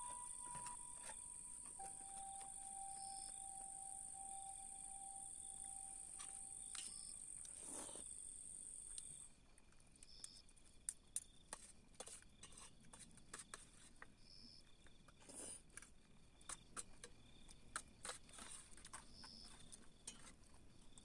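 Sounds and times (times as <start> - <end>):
crickets trilling: 0.0 - 15.3.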